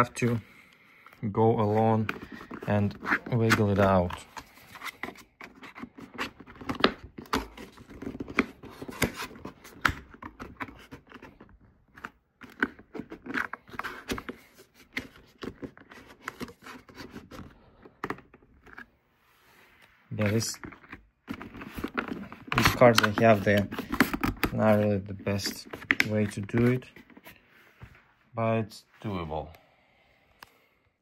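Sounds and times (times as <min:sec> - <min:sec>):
plastic card prying plastic cover: 0:02.0 - 0:11.4, 0:20.8 - 0:24.6, 0:25.6 - 0:26.4.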